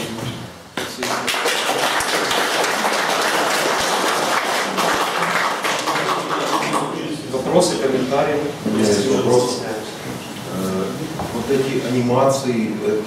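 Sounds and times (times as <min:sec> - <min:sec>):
audience applauding: 0:00.8 - 0:07.1.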